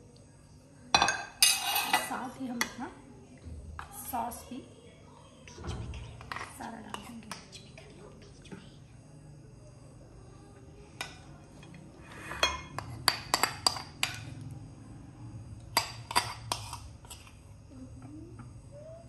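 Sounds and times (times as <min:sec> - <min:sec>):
metal spoon clinking against pan: 0:01.0 - 0:02.2, 0:12.4 - 0:14.3.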